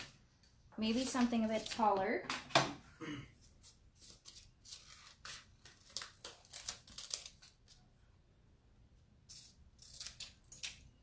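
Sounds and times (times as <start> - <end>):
crinkling of a transfer sheet: 3.6 - 7.9.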